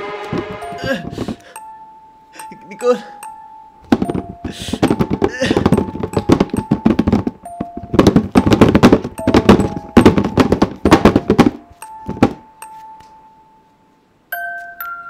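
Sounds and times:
heavy banging: 0:00.0 - 0:01.6, 0:03.8 - 0:12.5
held high tone in horror score: 0:00.0 - 0:01.6
thud: 0:00.3 - 0:01.4, 0:03.9 - 0:12.4.

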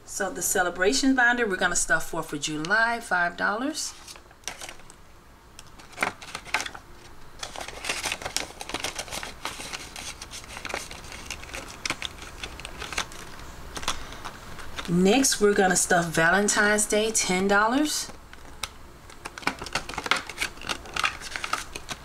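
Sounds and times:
paper money crinkling: 0:03.9 - 0:04.9, 0:05.7 - 0:16.8, 0:17.7 - 0:22.0.

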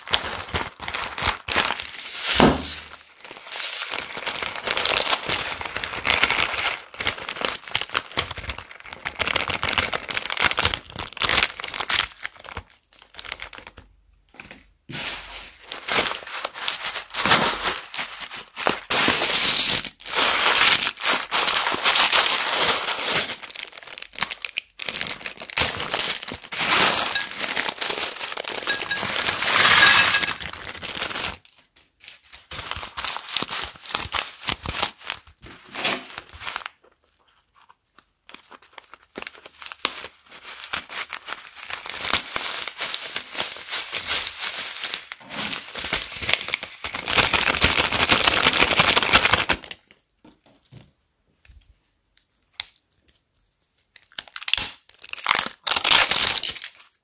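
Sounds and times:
plastic bags crinkling: 0:00.0 - 0:49.9, 0:54.2 - 0:57.0
beads shifting inside bags: 0:14.9 - 0:31.4.

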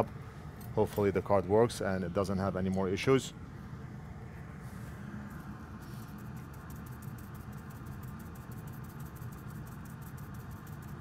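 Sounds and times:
steady low hum: 0:00.0 - 0:11.0
brush scrubbing circuit board: 0:05.8 - 0:11.0.

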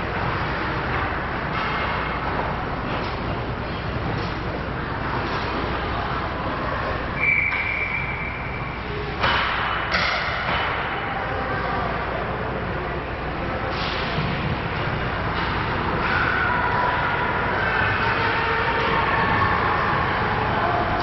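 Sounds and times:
high whistle: 0:07.2 - 0:08.8.

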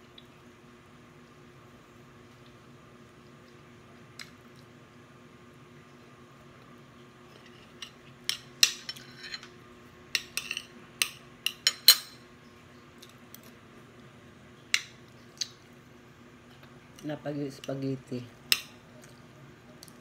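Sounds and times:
cutlery clinking on glass plate: 0:10.2 - 0:12.2.

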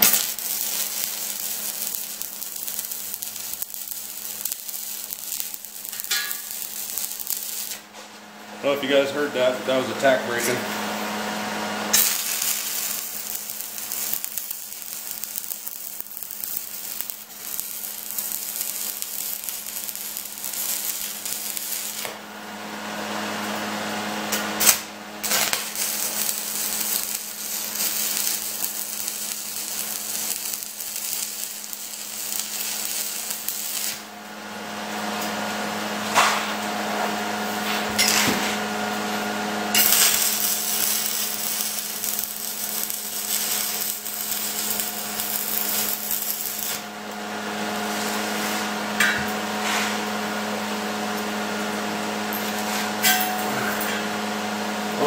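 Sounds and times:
welding arc crackling and hissing: 0:00.0 - 0:08.0, 0:08.6 - 0:55.0
steady hum: 0:23.8 - 0:55.0.

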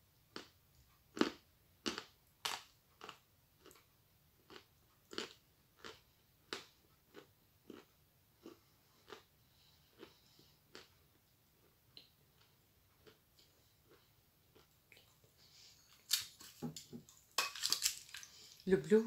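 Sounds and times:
chewing chalk crunches: 0:04.5 - 0:09.3.

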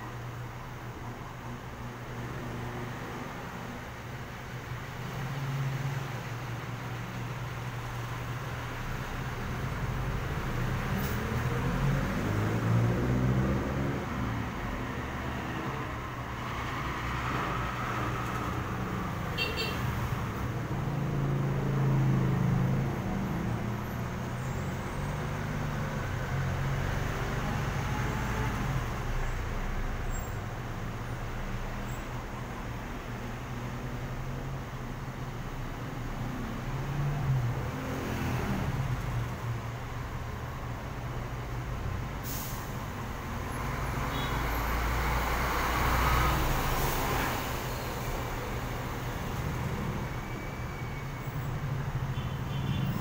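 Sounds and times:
passing vehicle engines: 0:00.0 - 0:53.0.

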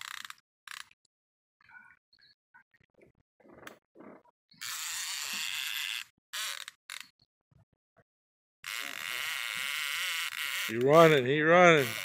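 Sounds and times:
fishing reel ratcheting buzz: 0:04.6 - 0:07.1, 0:08.6 - 0:12.0.

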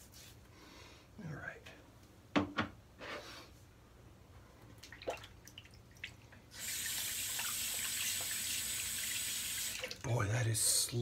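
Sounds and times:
tap water running into sink: 0:06.6 - 0:10.0.

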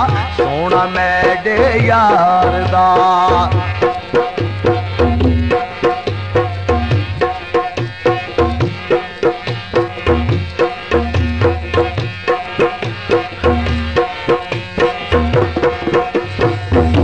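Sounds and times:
hand drums playing rhythm: 0:00.0 - 0:17.0
held melody line: 0:00.0 - 0:17.0.

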